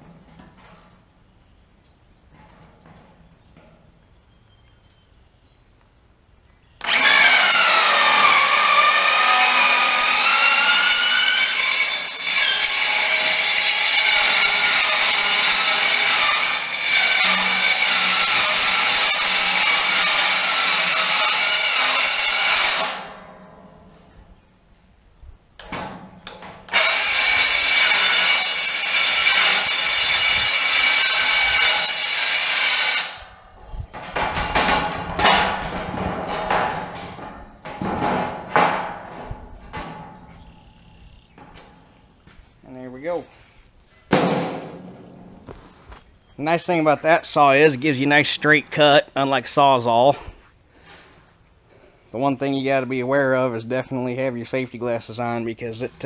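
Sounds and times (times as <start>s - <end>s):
circular saw cutting steel: 6.8s - 23.2s, 26.7s - 33.4s
metal knocks and clatters: 33.9s - 40.5s.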